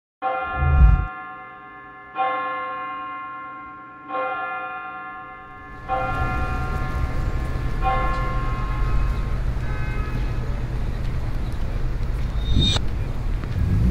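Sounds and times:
city traffic rumble: 5.4 - 13.9.

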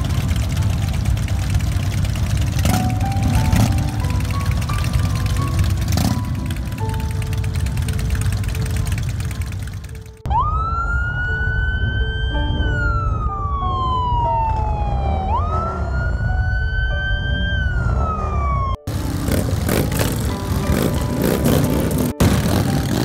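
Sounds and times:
background music: 0.0 - 23.0
police siren wailing: 10.3 - 18.9.

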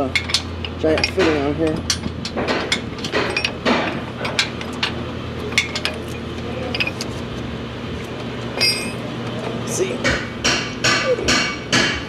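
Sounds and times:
steady low hum: 0.0 - 12.0
metal ringing clink: 8.6 - 9.0.

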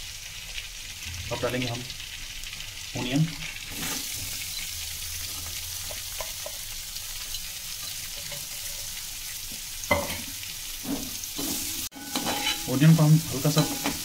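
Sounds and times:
onion sizzling in butter: 0.0 - 14.0
spatula strokes against pan: 10.8 - 14.0.

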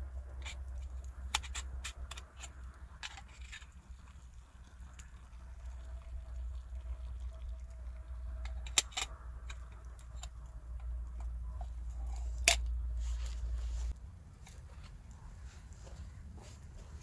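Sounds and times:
steady low rumble: 0.0 - 17.0
wood fire crackling: 0.0 - 17.0.

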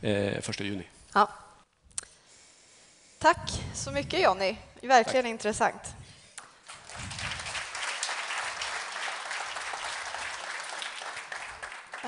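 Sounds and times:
audience applauding: 6.4 - 12.0.

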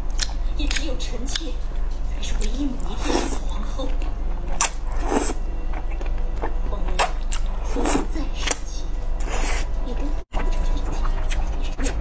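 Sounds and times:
chewing and lip-smacking: 0.0 - 2.6, 10.4 - 12.0
slurping noodles: 4.9 - 5.4, 9.2 - 9.7.

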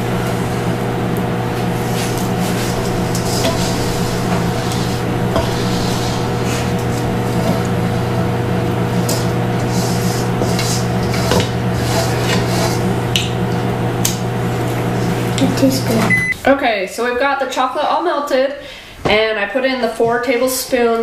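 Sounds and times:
microwave oven humming: 0.0 - 16.5
spatula scraping metal bowl: 1.8 - 13.0.

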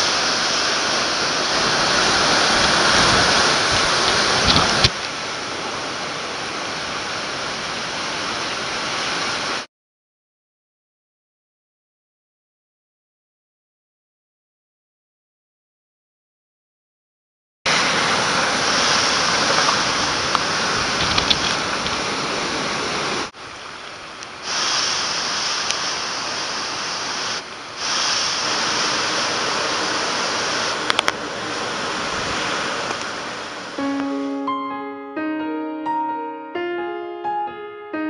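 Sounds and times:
storm wind: 0.0 - 9.6, 17.7 - 33.8
heavy rain: 0.0 - 9.7, 17.7 - 34.5
piano music: 33.8 - 38.0.

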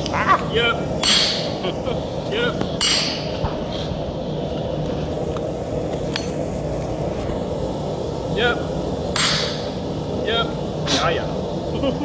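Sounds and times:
sledgehammer striking metal: 1.0 - 1.6, 2.8 - 3.4, 9.2 - 9.8.

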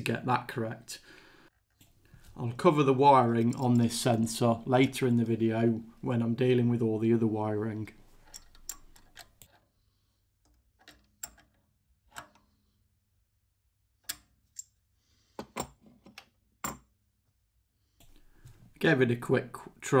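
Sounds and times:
spanner clicking on metal: 8.2 - 9.5.

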